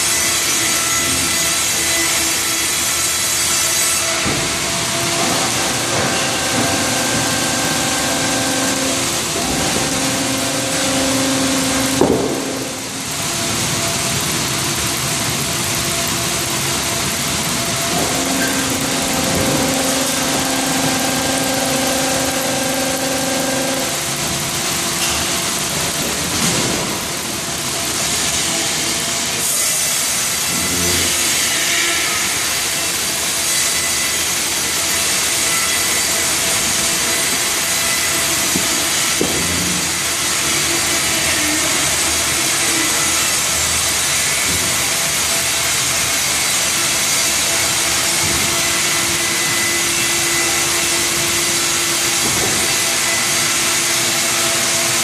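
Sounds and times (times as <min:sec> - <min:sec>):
sawmill machinery din: 0:00.0 - 0:55.0
steady hum: 0:04.3 - 0:27.6.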